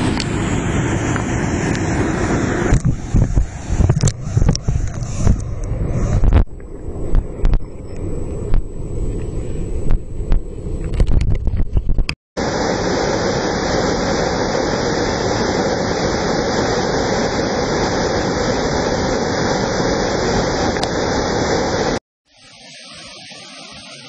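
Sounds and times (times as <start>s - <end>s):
waterfall rushing: 12.4s - 24.0s.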